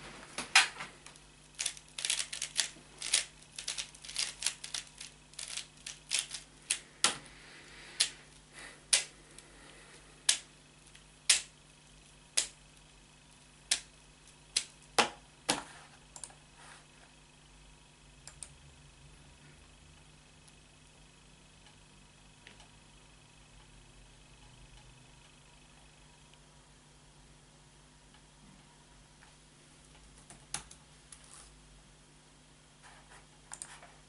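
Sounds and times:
puzzle cube clicking: 0:01.6 - 0:06.8.

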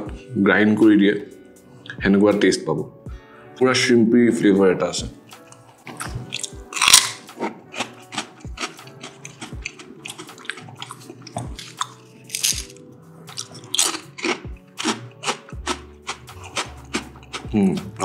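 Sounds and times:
background music with soft beat: 0:00.0 - 0:18.0
cracker crunching: 0:05.4 - 0:17.6.

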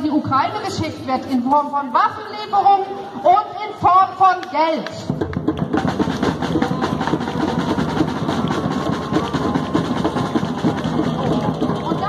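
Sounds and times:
drums beaten fast: 0:05.0 - 0:12.0.

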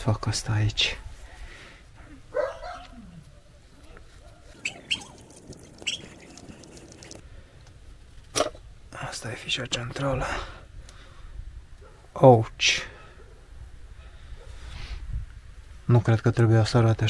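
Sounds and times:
high chirps: 0:04.5 - 0:07.2
animal sliding cry: 0:04.6 - 0:07.2.

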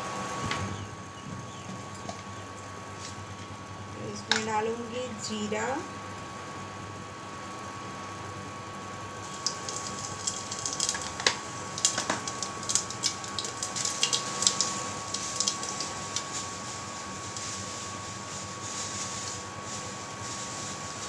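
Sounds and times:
seeds sizzling in hot oil: 0:07.4 - 0:21.0.

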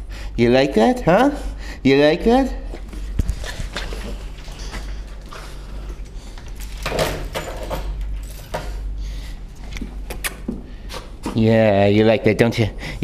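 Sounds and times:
steady low hum: 0:00.0 - 0:13.0
dog and person moving on hard floor: 0:02.7 - 0:07.8.

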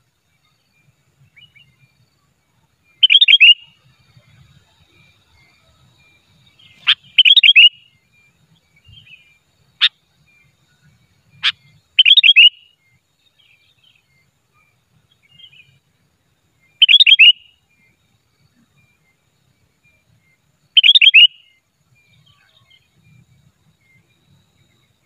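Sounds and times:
bulbul whistled song: 0:00.4 - 0:25.0
bird sharp call notes: 0:03.0 - 0:03.8, 0:06.6 - 0:07.9, 0:11.4 - 0:12.7, 0:16.8 - 0:17.5, 0:20.8 - 0:21.5.

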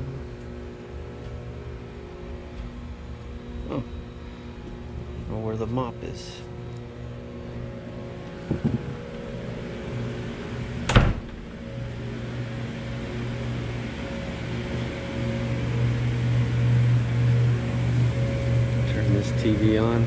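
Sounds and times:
low mechanical hum: 0:00.0 - 0:20.0
light knocks: 0:08.4 - 0:09.0
loud sharp thump: 0:10.9 - 0:11.4.

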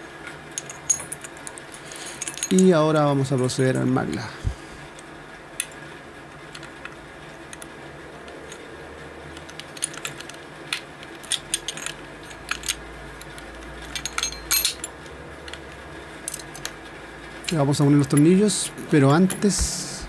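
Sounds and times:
metallic clicks of lock parts: 0:09.3 - 0:16.8.

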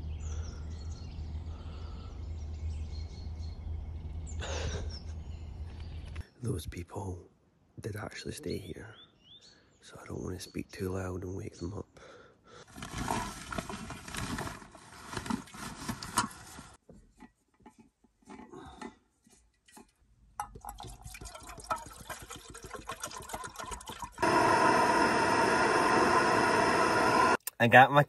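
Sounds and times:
rustling and clattering: 0:12.7 - 0:20.1
gas burner hissing: 0:24.2 - 0:27.4.

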